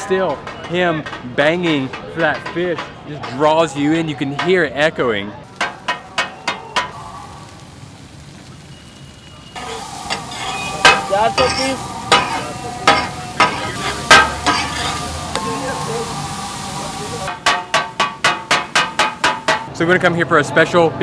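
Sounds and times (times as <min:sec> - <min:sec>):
fish and onions sizzling: 0:05.4 - 0:19.7
spatulas clanking on griddle: 0:05.6 - 0:07.0, 0:09.6 - 0:15.0, 0:17.3 - 0:19.7
rhythmic blade chopping clangs: 0:17.3 - 0:19.7.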